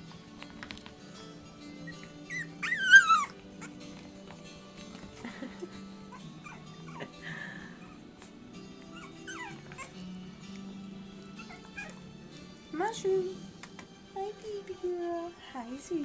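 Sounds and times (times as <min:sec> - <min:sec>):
background music: 0:00.0 - 0:16.0
faint puppy squeaks: 0:01.8 - 0:03.8, 0:06.1 - 0:07.1, 0:08.8 - 0:10.0, 0:11.4 - 0:12.0
puppy whining cry: 0:01.8 - 0:04.3, 0:05.6 - 0:07.2, 0:07.8 - 0:10.2, 0:11.2 - 0:12.1.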